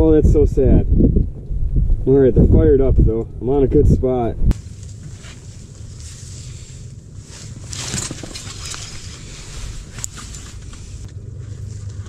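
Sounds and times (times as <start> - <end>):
steady low rumble: 0.0 - 12.0
padded jacket rustling: 4.5 - 12.0
fishing rod being handled: 4.6 - 11.1.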